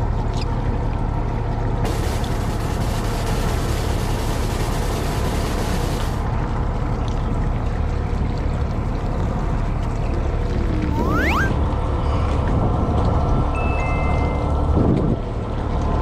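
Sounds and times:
boat machinery drone: 0.0 - 16.0
water noise: 0.0 - 16.0
rising tone: 10.7 - 11.7.

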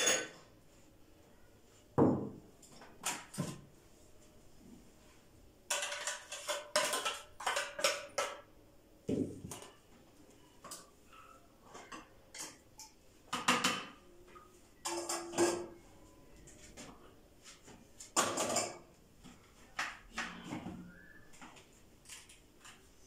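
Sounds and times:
metal utensils clinking and clattering: 0.0 - 0.5, 5.7 - 8.4, 14.8 - 15.8.

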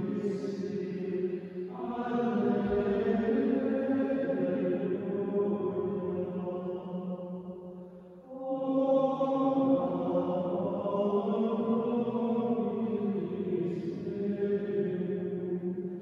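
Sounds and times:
choir chanting in unison: 0.0 - 16.0.

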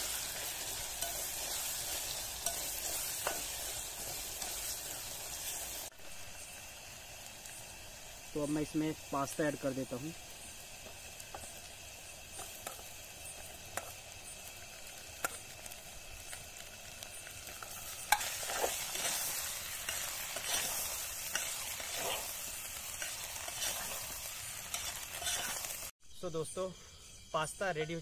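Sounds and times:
food sizzling in a pot: 0.0 - 26.0
metal spoon scraping a pot: 24.7 - 25.7.

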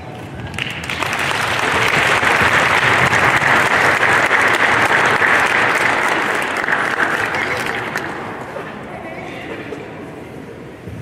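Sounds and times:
audience applauding: 0.0 - 8.7.

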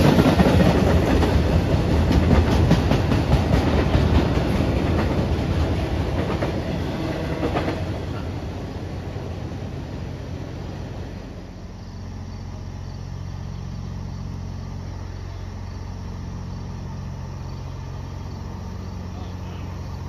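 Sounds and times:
crickets chirping: 0.0 - 20.0
engine humming: 0.0 - 20.0.

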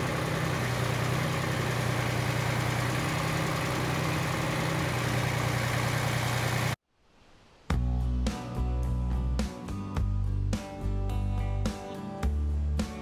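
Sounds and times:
tractor engine running: 0.0 - 6.8.

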